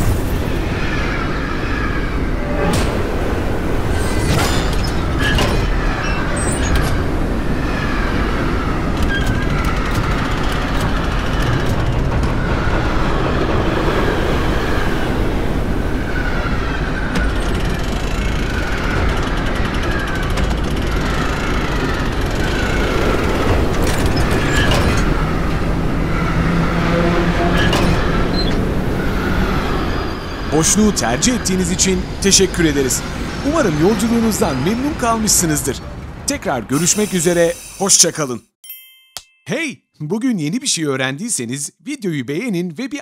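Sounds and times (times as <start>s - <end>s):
roller coaster wheels rumbling: 0.0s - 37.6s
short falling tone: 22.7s - 29.2s.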